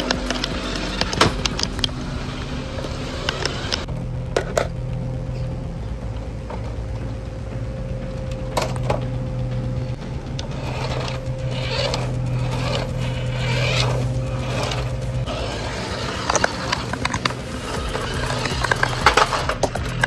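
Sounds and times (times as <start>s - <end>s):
toy car electric motor: 0.0s - 4.7s, 10.4s - 20.0s
steady low hum: 0.0s - 20.0s.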